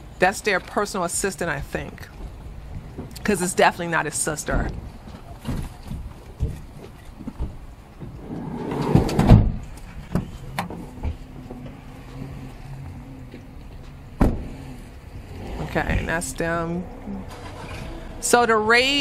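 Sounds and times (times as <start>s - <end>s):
low engine hum: 7.4s - 19.0s
sliding door slamming shut: 8.2s - 9.7s, 14.2s - 14.7s.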